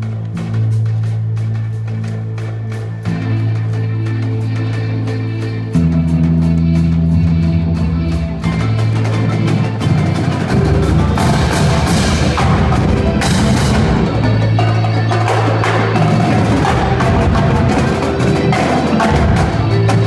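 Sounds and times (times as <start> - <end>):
electric guitars and synthesizer chords: 0.0 - 20.0
marimba: 0.0 - 20.0
snare and bass drums: 5.8 - 20.0.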